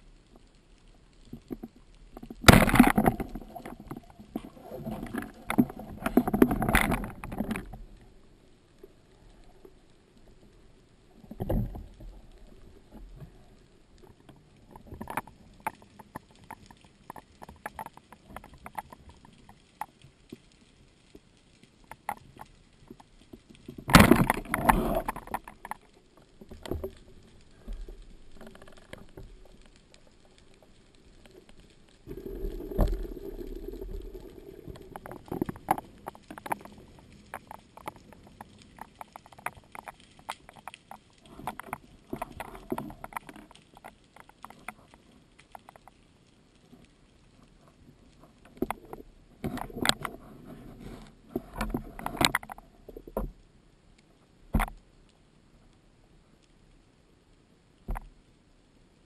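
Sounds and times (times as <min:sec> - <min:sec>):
underwater clicks and knocks: 0:01.2 - 0:08.0, 0:11.2 - 0:13.4, 0:14.0 - 0:21.2, 0:21.8 - 0:46.0, 0:47.6 - 0:53.4, 0:54.5 - 0:54.8, 0:57.8 - 0:58.2.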